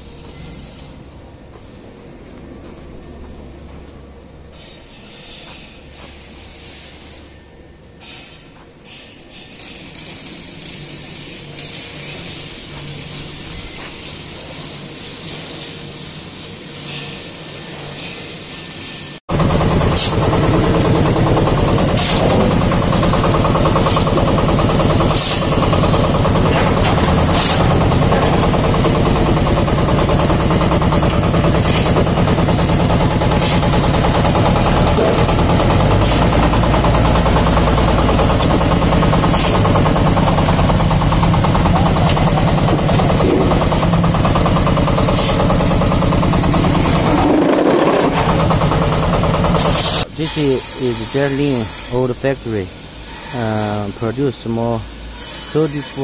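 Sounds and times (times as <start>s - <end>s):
fast rattle of vibrating mould: 19.3s - 50.0s
engine drone: 19.3s - 50.1s.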